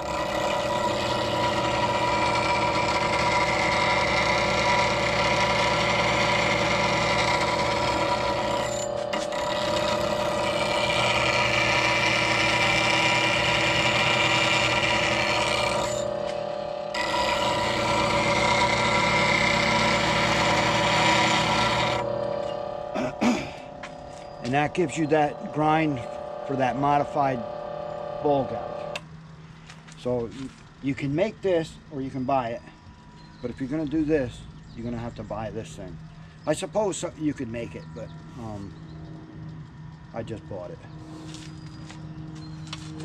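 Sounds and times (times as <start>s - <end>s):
steel grinding on wheel: 0.0s - 29.0s
bench grinder motor running: 0.0s - 43.0s.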